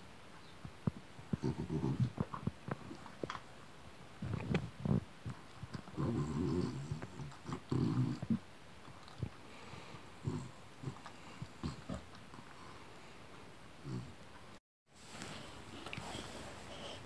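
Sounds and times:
dog growling and grunting: 1.3s - 3.0s, 5.7s - 8.4s, 10.2s - 12.5s, 13.8s - 14.2s.

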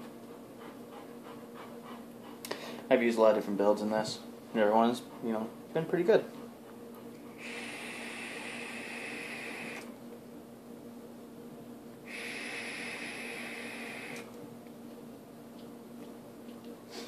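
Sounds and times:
vape hiss: 7.4s - 9.9s, 12.0s - 14.3s.

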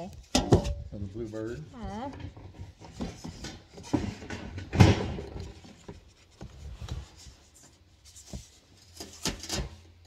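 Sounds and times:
metal trays clattering in plastic tote: 2.1s - 5.8s.

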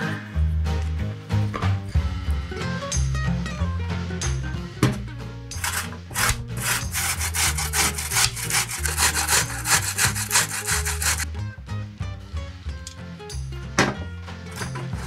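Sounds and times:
soft background music: 0.0s - 15.0s
potato rasping on grater: 5.6s - 11.3s.

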